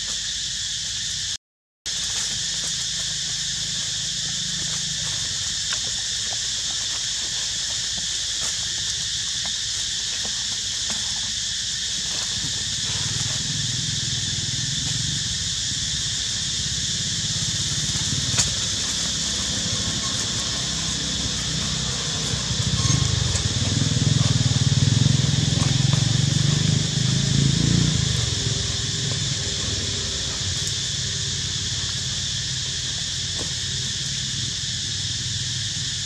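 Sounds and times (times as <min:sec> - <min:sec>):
high-pitched outdoor hiss: 0:00.0 - 0:36.0.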